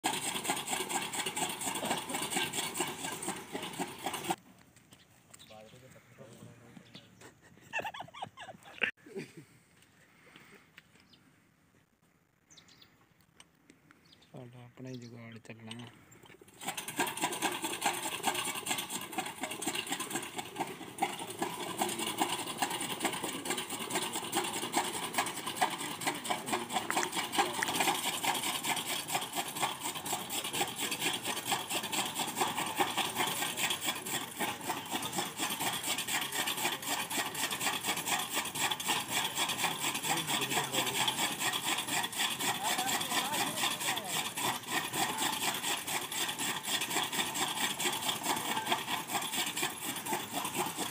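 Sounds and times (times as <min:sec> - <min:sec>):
gearbox rattling and clattering: 0:00.0 - 0:04.4, 0:15.7 - 0:50.9.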